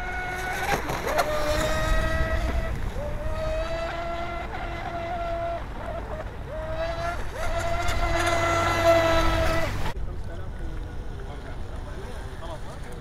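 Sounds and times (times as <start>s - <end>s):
high motor whine: 0.0s - 10.0s
rush of spray and wind: 0.0s - 13.0s.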